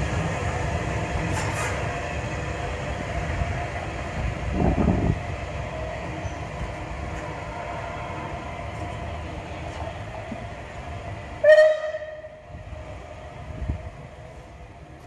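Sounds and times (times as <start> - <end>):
distant locomotive running: 0.0 - 15.0
locomotive whistle toot: 11.4 - 12.4.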